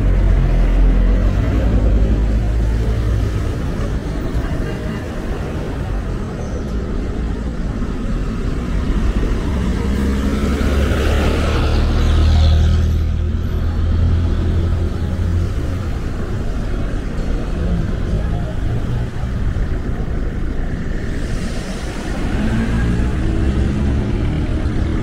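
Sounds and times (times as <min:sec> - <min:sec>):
steady traffic noise: 0:00.0 - 0:25.0
vehicle approaching: 0:00.0 - 0:25.0
vehicle passing with engine rumble: 0:07.1 - 0:25.0.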